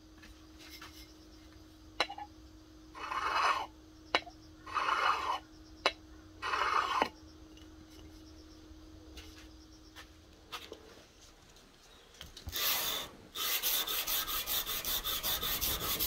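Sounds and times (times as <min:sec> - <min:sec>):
knife scraping on glass bottle: 0:03.0 - 0:03.7, 0:04.7 - 0:05.4, 0:06.4 - 0:07.2.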